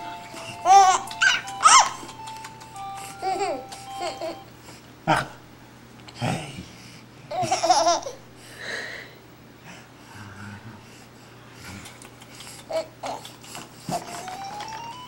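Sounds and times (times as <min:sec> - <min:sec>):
baby laughing: 0:00.0 - 0:04.5, 0:07.3 - 0:08.2, 0:11.8 - 0:14.3
baby squealing: 0:00.8 - 0:02.0.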